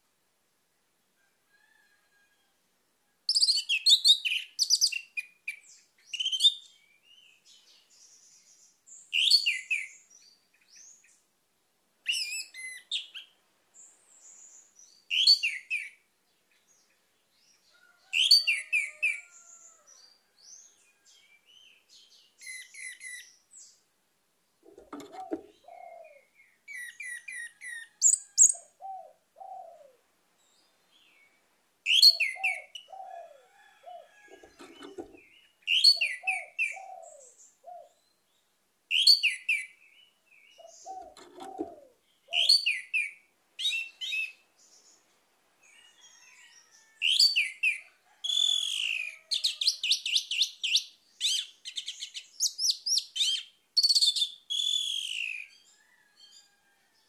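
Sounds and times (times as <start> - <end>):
thrush singing whistles and trills: 49.8 - 55.4.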